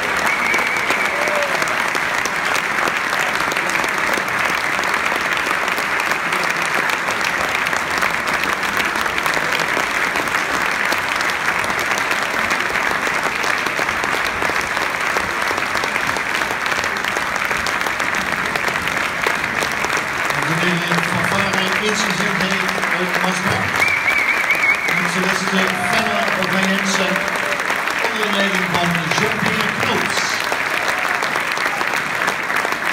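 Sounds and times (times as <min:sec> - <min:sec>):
large audience applauding: 0:00.0 - 0:32.9.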